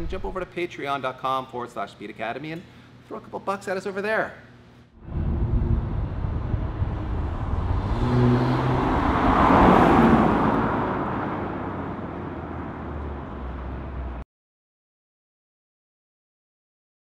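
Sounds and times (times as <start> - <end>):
car exhaust accelerating: 5.0 - 14.2.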